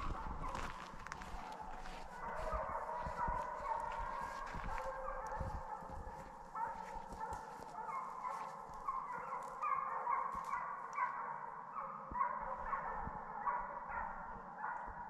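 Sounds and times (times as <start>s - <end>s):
hounds baying: 0.0s - 15.0s.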